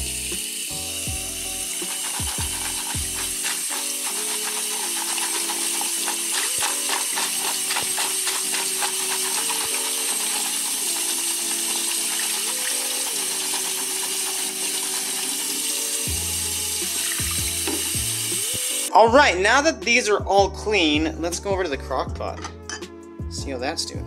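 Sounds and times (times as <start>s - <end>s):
kitchen tap running: 0.0s - 18.9s
background music with tapping beat: 0.0s - 24.0s.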